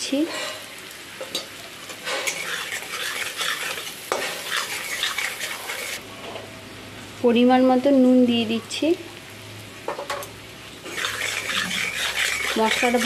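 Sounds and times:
paste sizzling in hot oil: 0:00.1 - 0:06.0, 0:10.4 - 0:13.0
metal spatula scraping pan: 0:02.0 - 0:06.0, 0:10.9 - 0:13.0.

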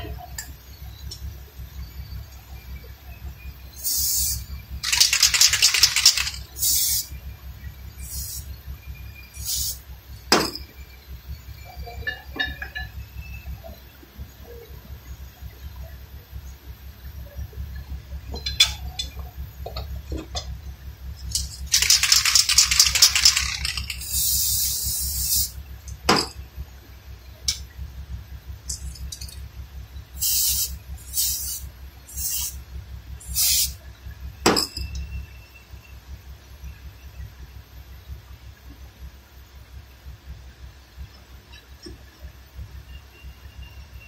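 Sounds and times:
steady low hum: 0:00.0 - 0:44.0
air hissing: 0:03.8 - 0:05.0, 0:06.2 - 0:07.1, 0:08.0 - 0:08.6, 0:09.3 - 0:09.8, 0:21.7 - 0:25.6, 0:30.2 - 0:33.8
rapid rasping clicks: 0:04.8 - 0:06.9, 0:21.2 - 0:25.0.

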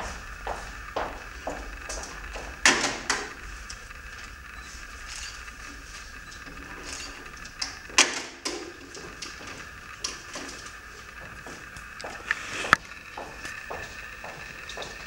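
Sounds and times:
footsteps on wooden stage: 0:00.0 - 0:02.6, 0:10.4 - 0:15.0
steady hiss: 0:00.0 - 0:15.0.

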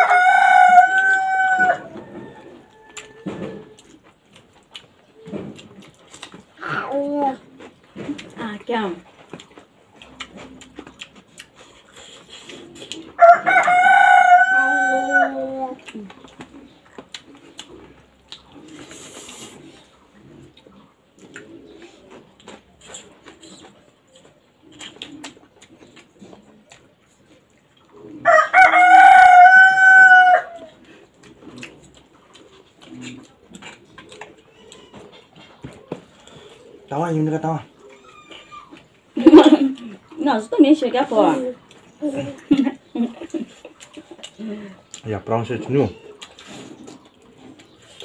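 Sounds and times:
rooster crowing: 0:00.0 - 0:03.8, 0:13.2 - 0:15.7, 0:28.2 - 0:30.7
people eating by hand: 0:00.0 - 0:48.0.

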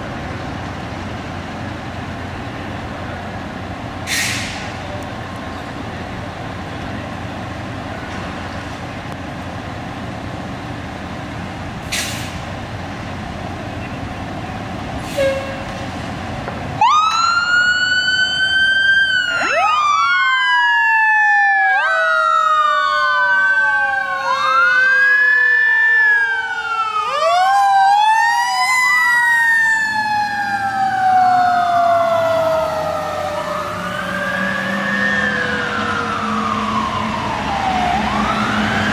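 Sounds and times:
fire truck engines rumbling: 0:00.0 - 0:38.9
fire truck sirens wailing: 0:00.0 - 0:38.9
short sharp hisses: 0:04.1 - 0:04.8, 0:11.8 - 0:12.4.

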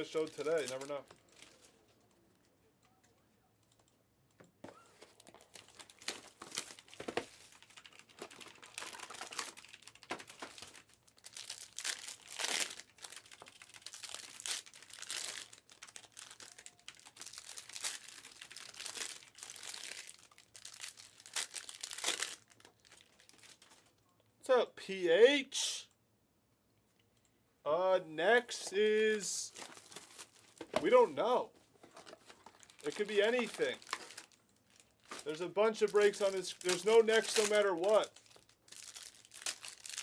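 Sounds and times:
plastic wrapping crinkling and tearing: 0:00.0 - 0:01.8, 0:05.0 - 0:23.9, 0:29.5 - 0:31.1, 0:31.9 - 0:40.0.

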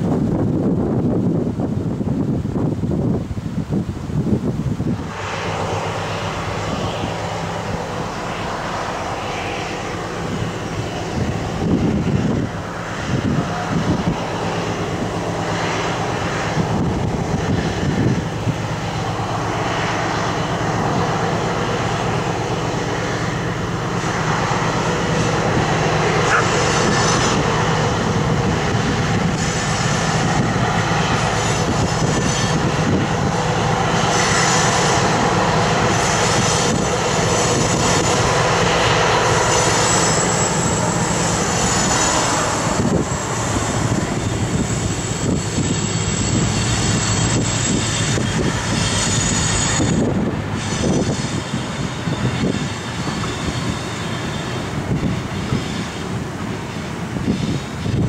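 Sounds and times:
diesel locomotive engine drone: 0:00.0 - 0:58.0
wind buffeting microphone: 0:00.0 - 0:58.0.

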